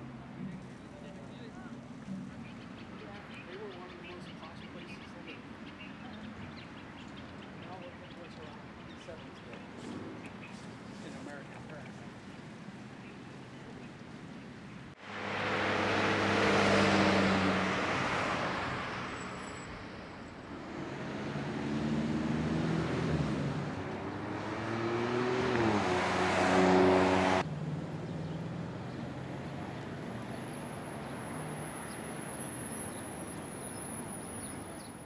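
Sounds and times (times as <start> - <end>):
steady traffic hum: 0.0 - 35.0
vehicle passing: 14.9 - 34.9
vehicle accelerating past: 15.0 - 34.5.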